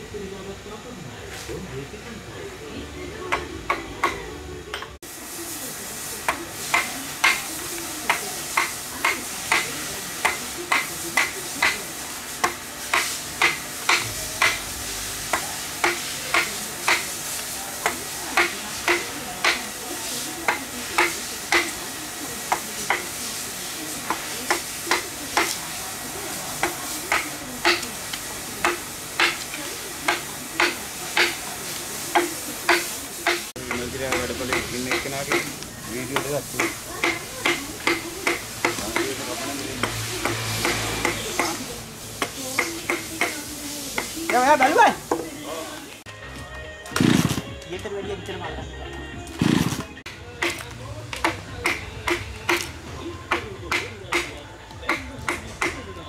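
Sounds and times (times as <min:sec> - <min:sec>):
mallet striking chisel into wood: 0:26.6 - 0:27.9, 0:32.1 - 0:35.6, 0:36.2 - 0:39.1, 0:50.4 - 0:52.7, 0:53.3 - 0:55.8.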